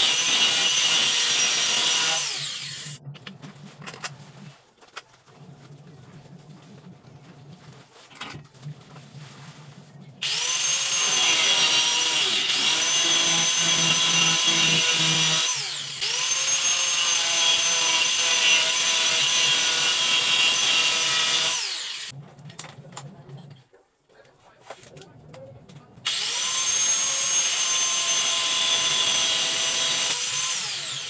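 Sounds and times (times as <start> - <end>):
angle grinder cutting plastic pipe: 0.0 - 3.0, 10.2 - 22.2, 26.1 - 31.0.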